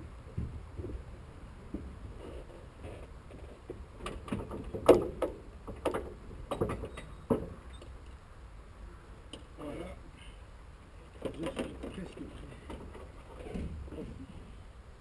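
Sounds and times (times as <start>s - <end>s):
low steady rumble: 0.0s - 15.0s
knocks and rattles on airframe: 3.7s - 7.6s, 11.2s - 14.2s.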